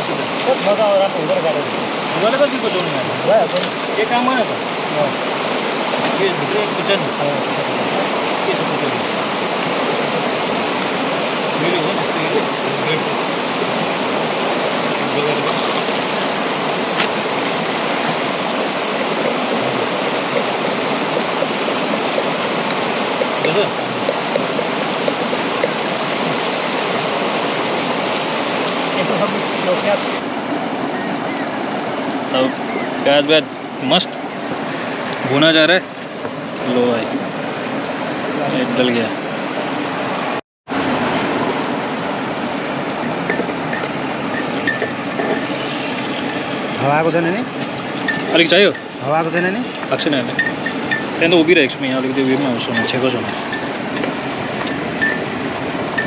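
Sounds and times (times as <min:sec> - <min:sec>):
river rushing over rocks: 0:00.0 - 0:56.0
onions frying in pot: 0:43.2 - 0:56.0.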